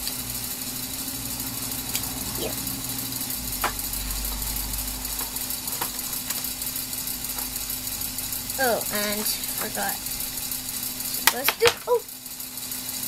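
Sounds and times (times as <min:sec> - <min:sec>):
steady low hum: 0:00.0 - 0:13.0
plastic pieces clicking on table: 0:11.2 - 0:11.9.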